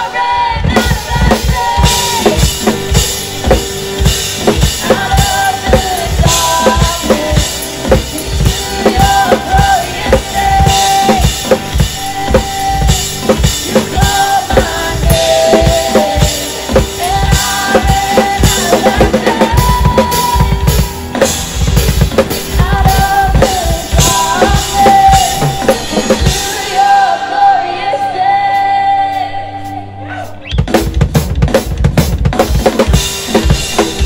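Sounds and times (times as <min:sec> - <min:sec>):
person singing: 0:00.0 - 0:03.0, 0:04.4 - 0:21.4, 0:22.4 - 0:30.5
drum kit played hard: 0:00.0 - 0:34.0.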